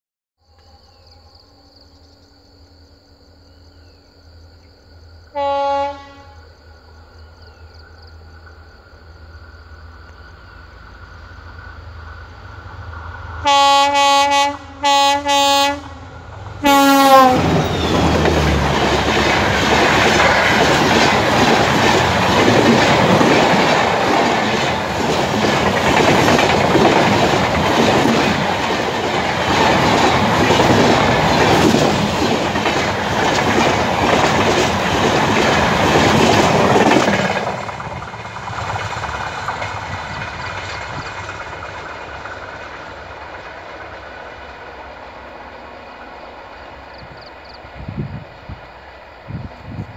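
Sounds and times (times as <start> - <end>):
train horn blasts: 5.3 - 6.5, 13.4 - 17.9
train coaches rushing past: 7.8 - 49.9
wheels clacking over rail joints: 17.3 - 45.4.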